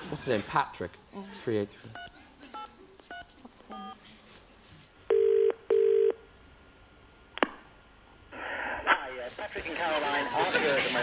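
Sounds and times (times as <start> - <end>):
telephone ringing tone: 5.1 - 6.2.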